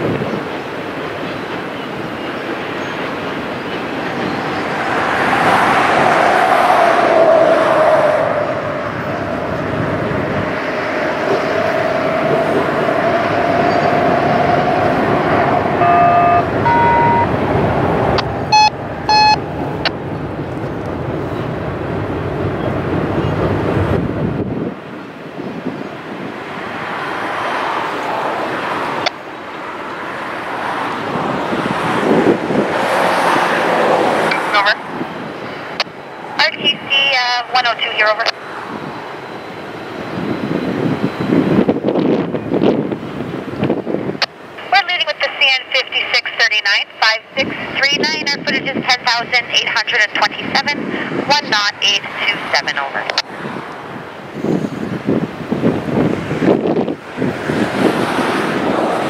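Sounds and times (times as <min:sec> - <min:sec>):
freight cars rolling over bridge: 0:00.0 - 0:59.0
short high beeps: 0:15.8 - 0:17.4, 0:18.5 - 0:19.5.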